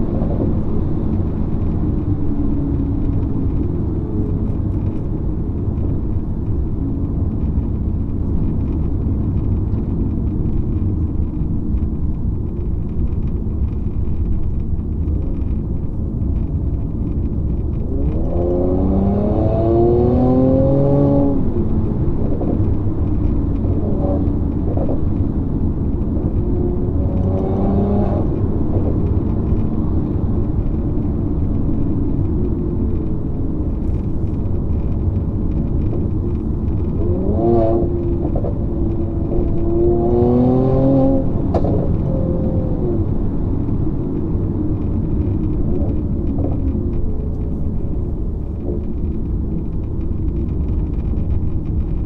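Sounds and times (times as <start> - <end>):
road rumble: 0.0 - 52.0
car engine revving: 16.4 - 31.0, 35.5 - 50.2.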